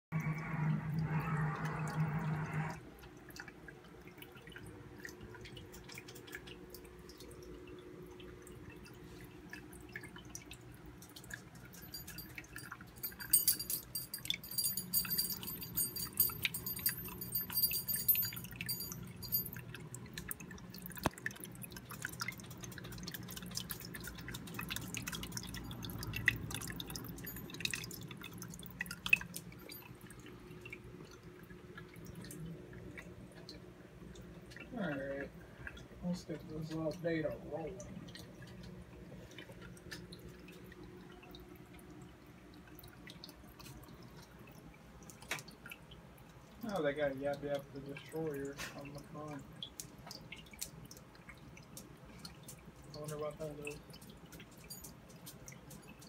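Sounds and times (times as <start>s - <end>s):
low steady hum: 0.1s - 56.0s
water dripping and trickling: 0.2s - 56.0s.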